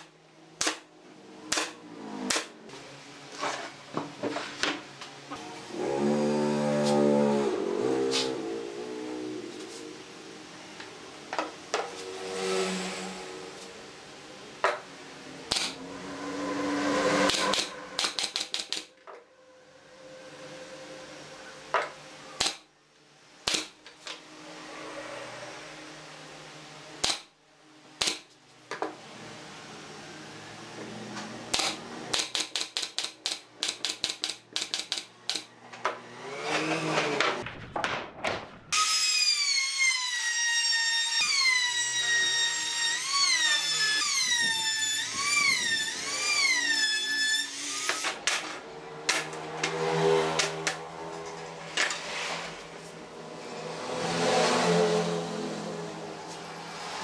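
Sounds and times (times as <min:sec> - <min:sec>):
nail gun firing: 0:00.0 - 0:00.8, 0:01.5 - 0:02.5, 0:15.5 - 0:15.8, 0:17.3 - 0:18.9, 0:22.4 - 0:22.7, 0:23.4 - 0:23.8, 0:27.0 - 0:27.3, 0:28.0 - 0:28.3, 0:31.5 - 0:35.5
high whine: 0:05.0 - 0:22.4.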